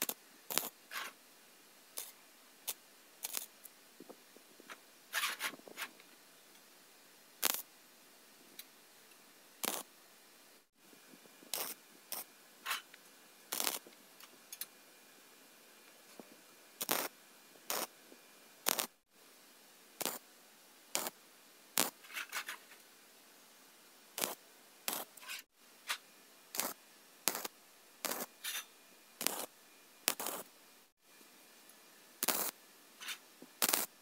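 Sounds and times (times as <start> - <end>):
welder arc bursts: 0.0 - 0.8, 2.0 - 3.6, 7.4 - 7.7, 9.6 - 9.9, 11.5 - 12.3, 13.5 - 13.9, 16.8 - 17.1, 17.7 - 17.9, 18.6 - 19.0, 20.0 - 20.2, 21.0 - 21.2, 21.8 - 22.0, 24.2 - 25.2, 26.5 - 28.3, 29.2 - 29.5, 30.1 - 30.5, 32.2 - 32.6, 33.6 - 34.0.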